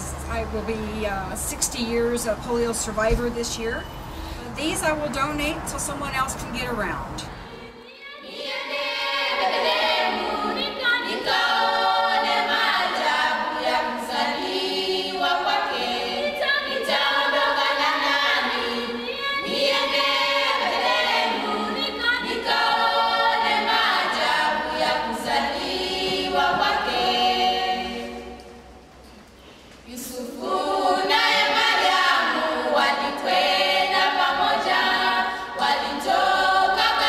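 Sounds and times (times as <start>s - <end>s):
a cappella choir singing: 7.4s - 28.9s, 29.8s - 37.0s.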